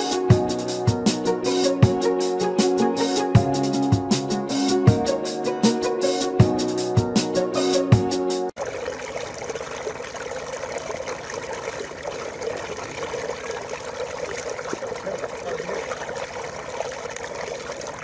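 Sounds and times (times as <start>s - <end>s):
water gushing and splashing: 8.5s - 18.0s.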